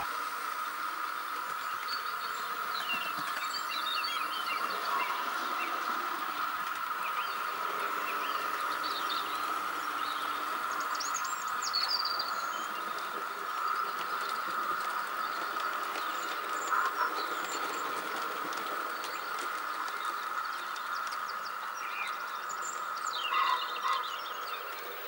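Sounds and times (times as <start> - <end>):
birds chirping: 0.0 - 25.0
model train motor whine: 0.0 - 25.0
train wheels rumbling on track: 0.0 - 25.0.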